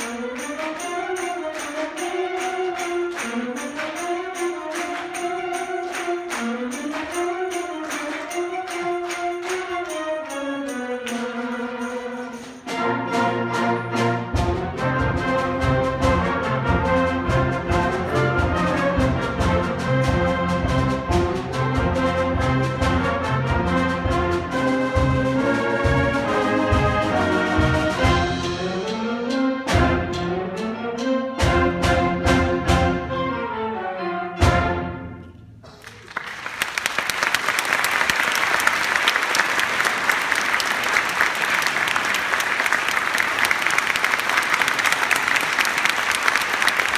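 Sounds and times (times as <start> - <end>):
audience applauding: 0.0 - 10.4, 35.7 - 46.9
brass chords: 0.0 - 35.7.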